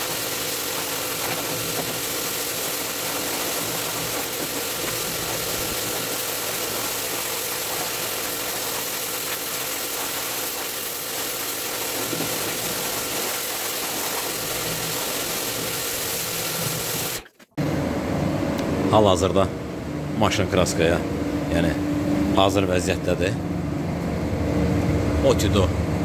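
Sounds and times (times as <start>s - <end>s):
motor running with hum: 0.0s - 20.2s.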